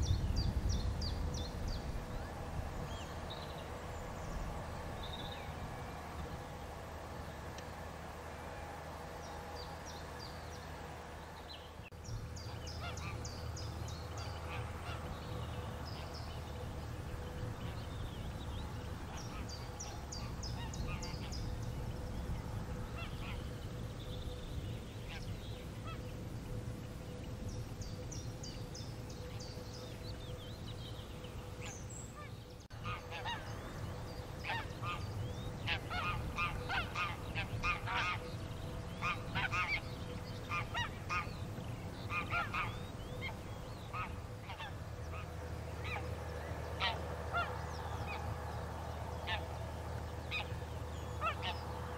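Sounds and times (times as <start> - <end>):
low steady rumble: 0.0 - 51.9
songbirds singing trilled phrases: 9.0 - 51.9
geese honking: 12.4 - 24.0, 31.4 - 51.9.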